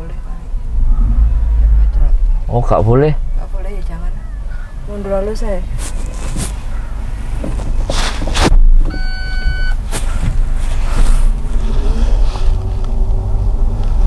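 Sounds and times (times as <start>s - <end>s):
car engine and road rumble: 0.0s - 14.0s
short beep: 8.9s - 9.8s.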